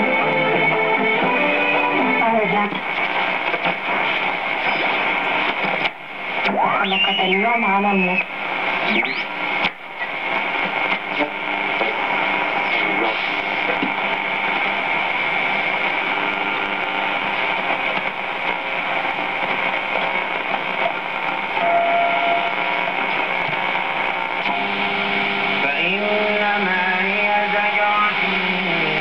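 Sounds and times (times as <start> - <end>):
radio static: 0.0 - 29.0
radio whistle: 6.6 - 9.5, 21.6 - 22.9.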